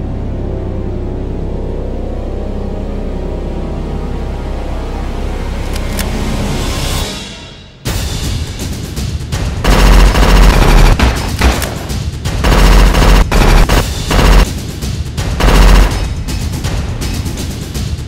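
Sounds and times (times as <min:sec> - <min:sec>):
background music: 0:00.0 - 0:18.0
automatic gunfire bursts: 0:09.6 - 0:14.5, 0:15.4 - 0:16.1.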